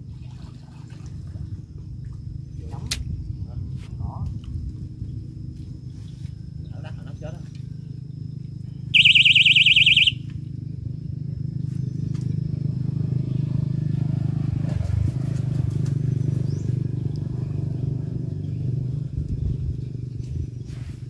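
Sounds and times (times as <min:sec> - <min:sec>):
steady low hum: 0:00.0 - 0:21.0
bite alarm warbling tone: 0:09.0 - 0:10.2.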